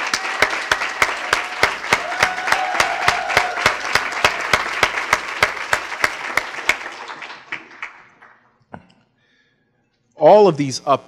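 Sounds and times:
audience applauding: 0.0 - 8.5
close clapping: 0.0 - 8.6.

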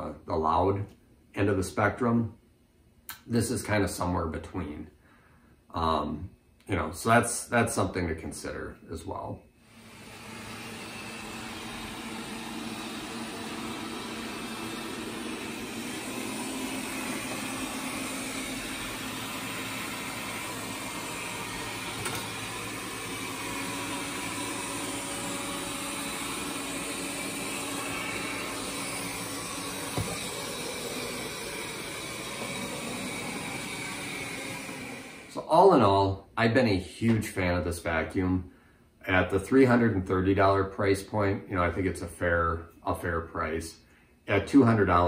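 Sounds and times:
robot vacuum whirring: 9.7 - 35.4.

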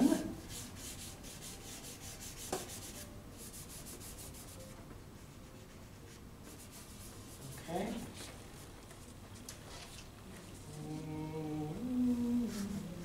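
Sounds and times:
charcoal scratching on paper: 0.1 - 8.0.

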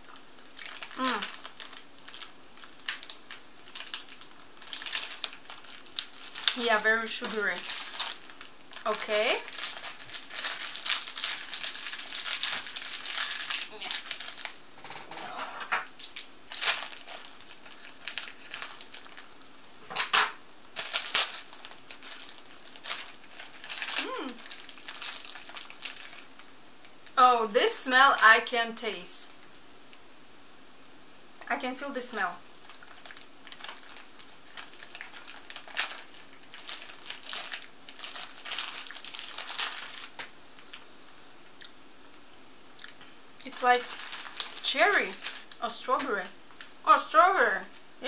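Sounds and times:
plastic packet crinkling: 0.0 - 14.6, 15.8 - 19.8, 20.7 - 26.5, 32.5 - 40.8, 42.8 - 46.8
packet corner tearing: 0.5 - 6.7, 7.4 - 14.5, 16.0 - 19.3, 20.8 - 26.3, 32.6 - 40.3, 43.5 - 45.6.

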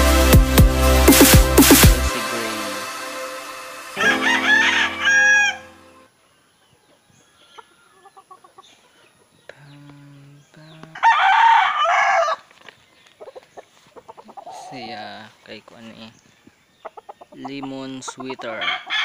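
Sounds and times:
short burst of music: 0.0 - 6.0
rooster crowing: 4.0 - 5.9, 11.0 - 12.5, 18.6 - 19.0.

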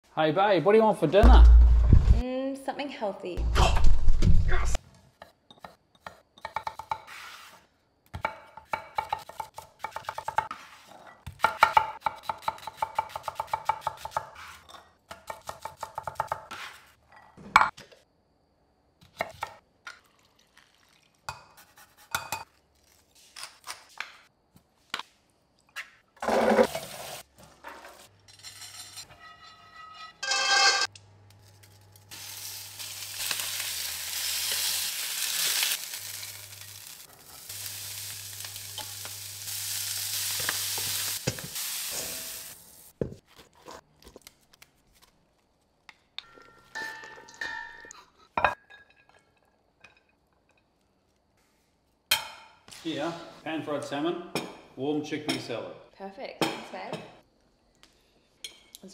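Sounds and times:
fish sizzling in a pan: 32.0 - 43.0.

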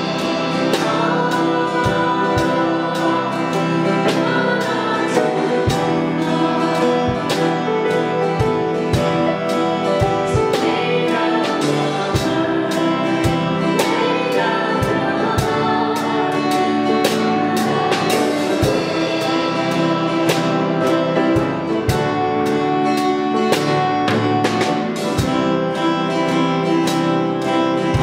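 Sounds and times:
person singing: 0.0 - 22.1
acoustic guitar: 0.0 - 28.0
drum kit beat: 0.0 - 28.0
piano: 0.0 - 28.0.

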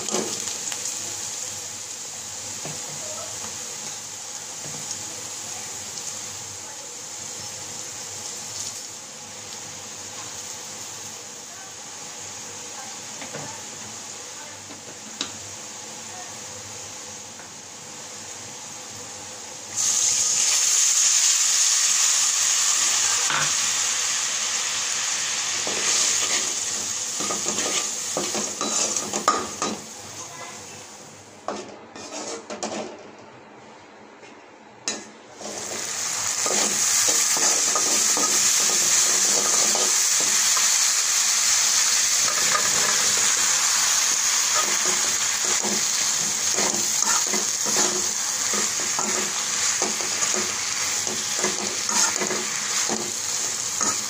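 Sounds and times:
oil sizzling in a wok: 0.0 - 32.8, 34.9 - 54.0
spatula scraping wok: 25.5 - 29.6, 31.5 - 33.0, 35.3 - 54.0.

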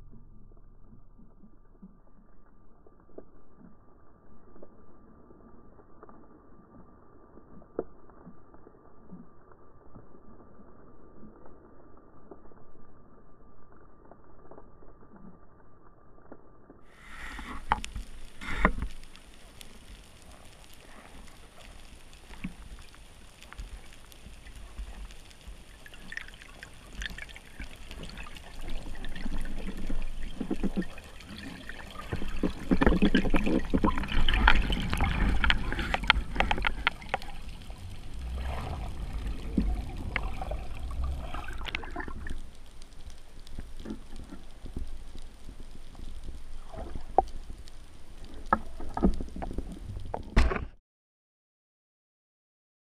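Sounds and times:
low underwater rush: 16.8 - 50.2
underwater bubbling: 16.8 - 50.3.

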